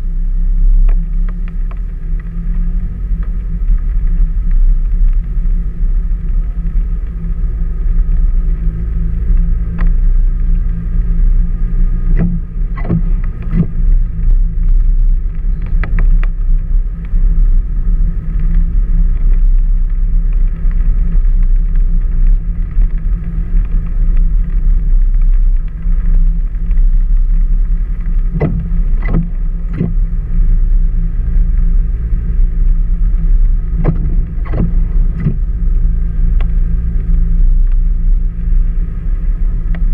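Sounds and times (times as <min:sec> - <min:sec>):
vehicle engine and tyres rumbling: 0:00.0 - 0:39.9
vehicle knocks and rattles: 0:11.9 - 0:38.5.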